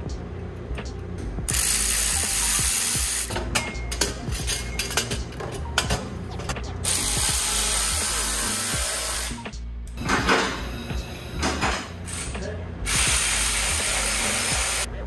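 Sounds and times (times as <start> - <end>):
ratchet wrench running: 1.5 - 5.2, 6.8 - 9.4, 12.1 - 14.9.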